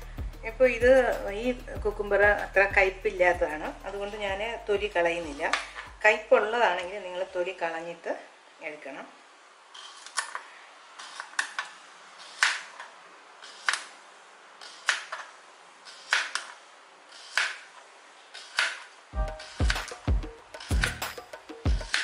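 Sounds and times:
knife slicing on cutting board: 15.9 - 16.5, 17.2 - 17.7, 20.6 - 22.0.

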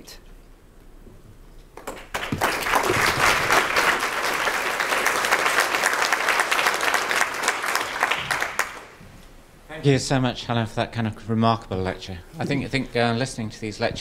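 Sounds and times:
audience applauding: 1.8 - 9.0.

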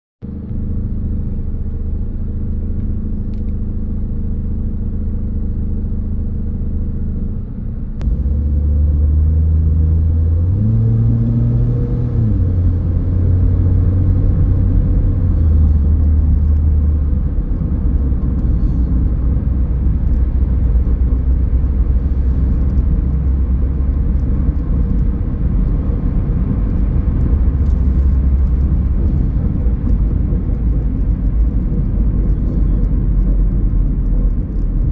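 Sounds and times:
car engine: 0.2 - 34.9
road noise: 0.2 - 34.9.

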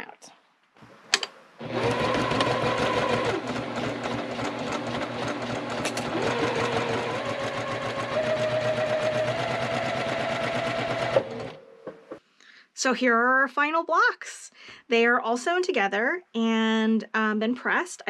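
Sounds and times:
electric sewing machine stitching: 1.6 - 11.6.

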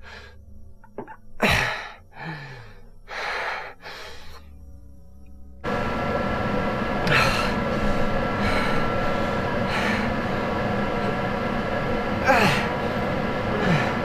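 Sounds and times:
loud steady rumbling: 5.4 - 14.0.

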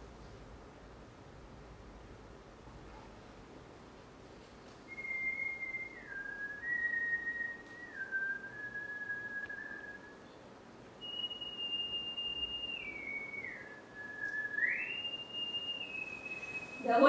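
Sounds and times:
person whistling a slow tune: 4.9 - 10.4, 11.0 - 17.0.

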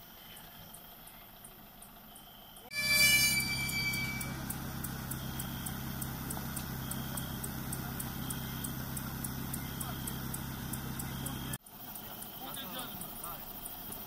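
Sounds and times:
engine humming: 0.1 - 14.0
faint high chirps: 2.6 - 13.9
sudden loud ringing bang: 2.7 - 4.5.

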